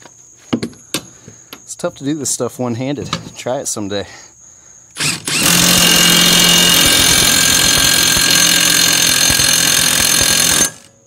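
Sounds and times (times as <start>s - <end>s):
impact wrench rattling: 5.0s - 10.9s.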